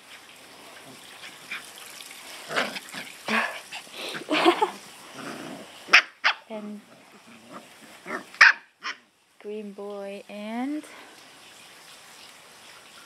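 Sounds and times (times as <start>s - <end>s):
puppies yipping and squealing: 5.9s - 9.0s.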